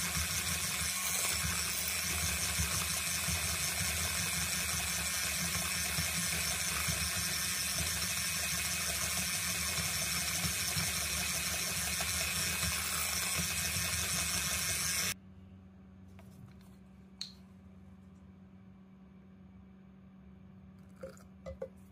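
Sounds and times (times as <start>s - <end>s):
electric hand mixer whirring: 0.0s - 15.2s.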